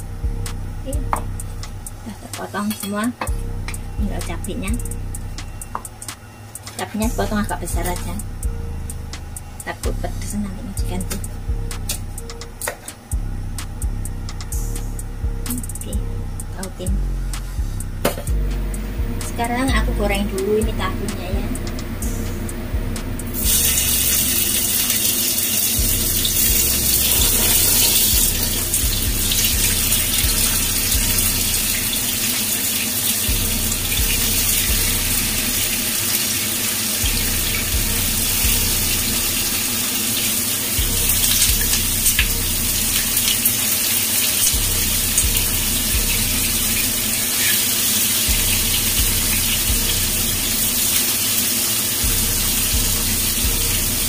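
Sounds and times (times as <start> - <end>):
tofu sizzling in hot oil: 23.4 - 53.8.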